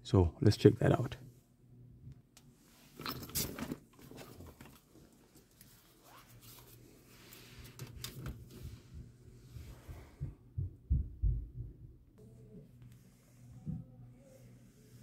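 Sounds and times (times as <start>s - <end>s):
faint low hum: 0.0s - 15.0s
rummaging in soft bag: 2.9s - 7.7s.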